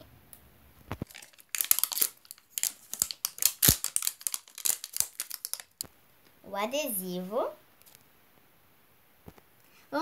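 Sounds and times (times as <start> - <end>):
plastic wrapper crinkling and tearing: 1.0 - 5.9.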